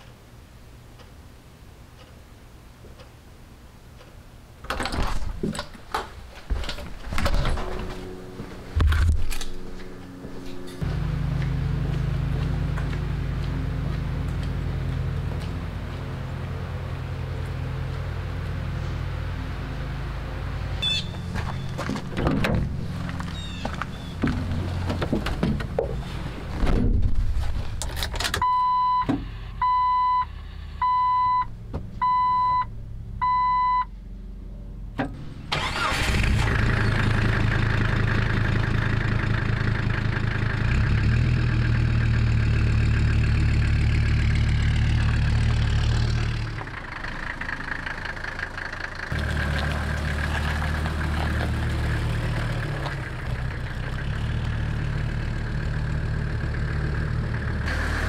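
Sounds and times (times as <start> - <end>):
diesel engine cranking and running: 6.6 - 26.6, 34.9 - 58.0
dashboard chime beeping: 32.0 - 32.6, 33.2 - 33.8.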